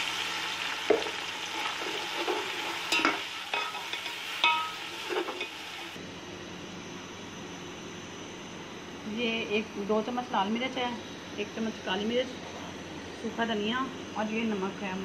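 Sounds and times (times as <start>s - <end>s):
chicken sizzling in oil: 0.0s - 6.0s
steady hum: 2.2s - 15.0s.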